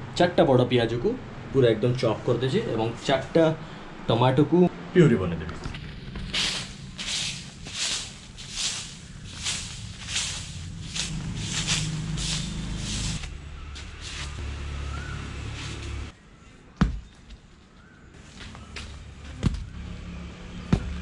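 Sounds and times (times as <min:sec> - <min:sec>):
broom sweeping earth and leaves: 0:05.8 - 0:16.2.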